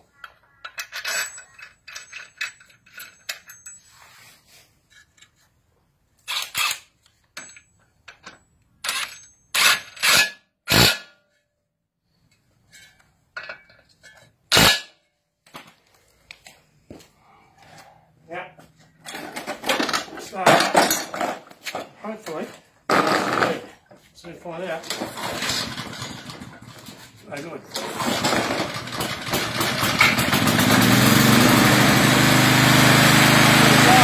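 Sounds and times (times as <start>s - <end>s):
metal tools clinking: 0.7s - 10.4s, 12.3s - 14.8s, 18.9s - 22.4s
impact wrench bursts: 22.9s - 23.7s.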